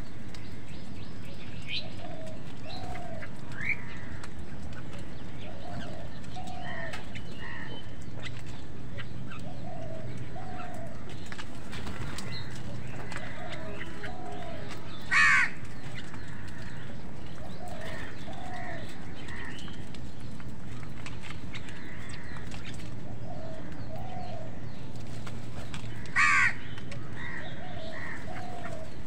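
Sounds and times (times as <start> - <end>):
crows cawing: 2.7 - 4.5, 5.6 - 7.9, 11.8 - 19.8, 21.6 - 22.8, 25.8 - 29.0.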